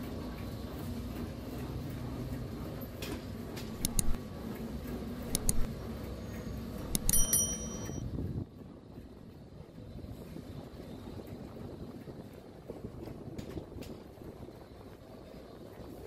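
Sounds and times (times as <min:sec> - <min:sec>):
sharp metallic clinks: 0:06.9 - 0:08.0.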